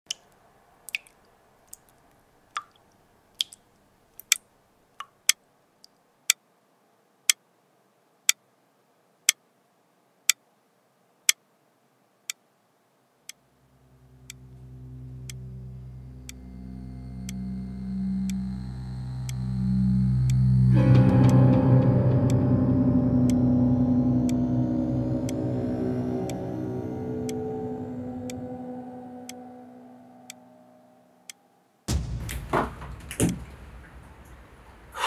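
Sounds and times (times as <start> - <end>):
low drone: 13.7 - 35.0
wall clock ticking: 14.0 - 22.5, 23.1 - 29.4.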